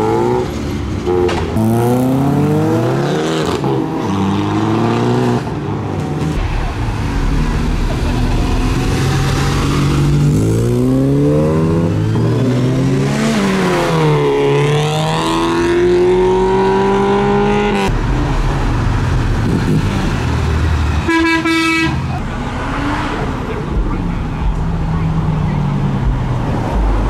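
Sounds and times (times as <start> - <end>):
car engine accelerating: 0.0 - 21.0
car horn toot: 21.0 - 22.1.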